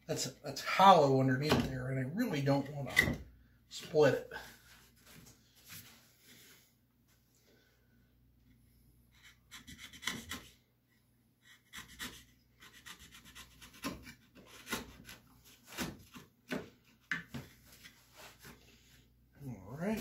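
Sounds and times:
knife scraping wood: 0:09.1 - 0:10.6, 0:11.4 - 0:18.5.

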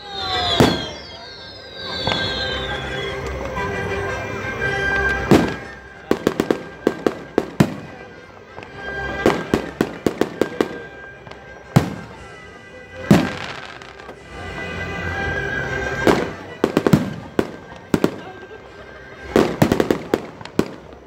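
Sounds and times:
fireworks bangs: 0:00.0 - 0:18.6, 0:19.2 - 0:21.0
firework pops: 0:01.9 - 0:03.6, 0:19.3 - 0:21.0.

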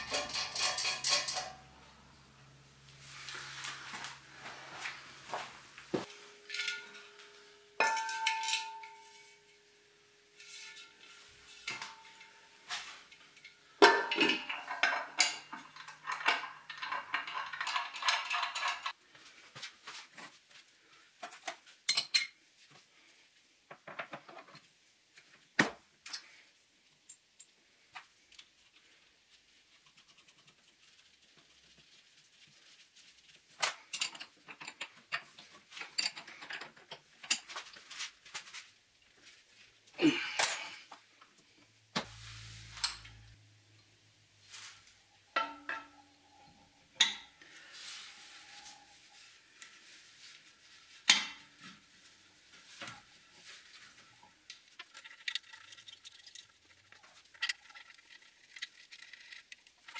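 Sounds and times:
metal tools clinking on workbench: 0:00.0 - 0:01.8, 0:06.4 - 0:09.4, 0:10.6 - 0:18.9
metal part ringing: 0:06.3 - 0:09.4.

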